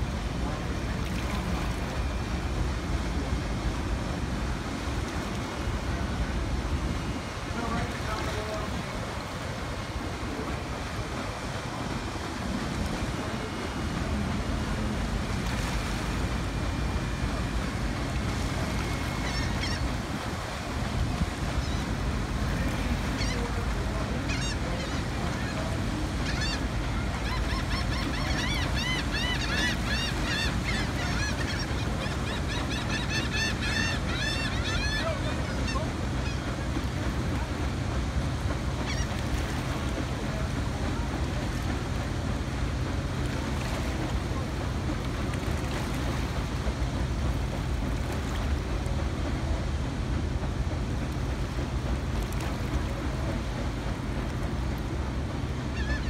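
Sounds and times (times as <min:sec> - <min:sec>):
river water: 0:00.0 - 0:56.0
wind: 0:00.0 - 0:56.0
birds honking: 0:18.5 - 0:22.0, 0:22.8 - 0:36.7.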